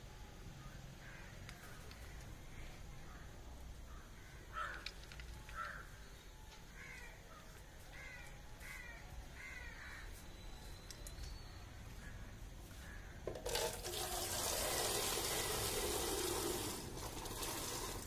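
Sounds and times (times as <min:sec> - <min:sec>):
distant crows cawing: 0:00.6 - 0:10.5, 0:11.8 - 0:13.4.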